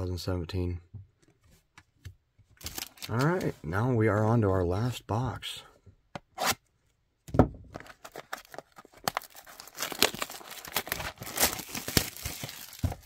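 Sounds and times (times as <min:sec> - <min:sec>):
shrink-wrap crinkling and tearing: 0:02.6 - 0:03.5, 0:07.8 - 0:13.0.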